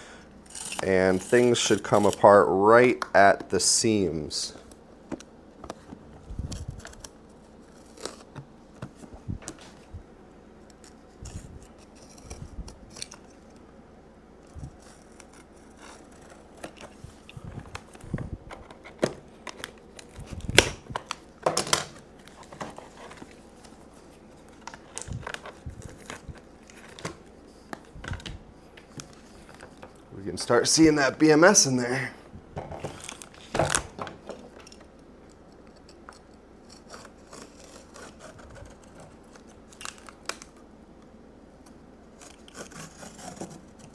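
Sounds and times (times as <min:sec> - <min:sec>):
snips cutting casing: 0:00.4 - 0:02.4, 0:34.6 - 0:40.6, 0:42.1 - 0:43.9.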